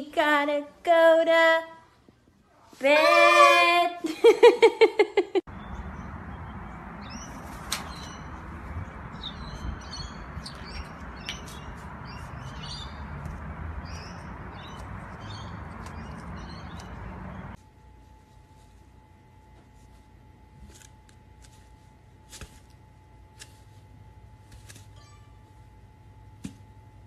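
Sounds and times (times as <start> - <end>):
background noise: 0.0 - 15.9.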